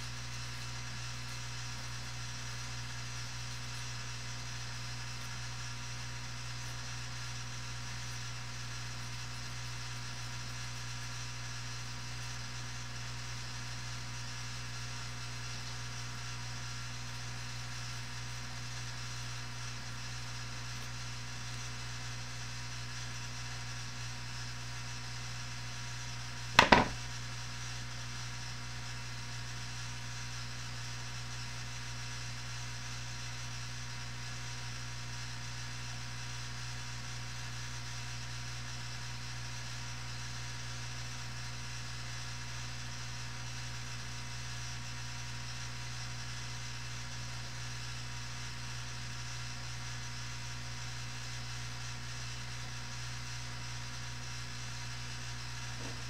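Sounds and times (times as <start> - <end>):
electrical hum and hiss: 26.5 - 27.6
sharp knock: 26.6 - 27.1.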